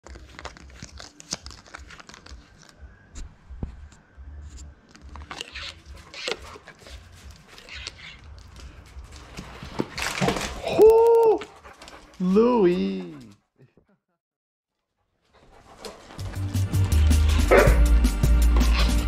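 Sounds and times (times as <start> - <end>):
packaging crinkling and tearing: 0.0 - 3.0, 9.4 - 10.8.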